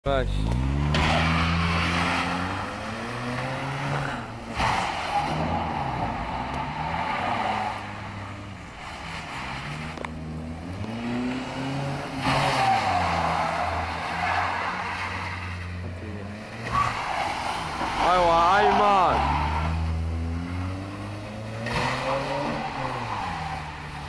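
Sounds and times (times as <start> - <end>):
car engine revving: 0.0 - 24.0
tyres squealing on sand: 16.6 - 19.8.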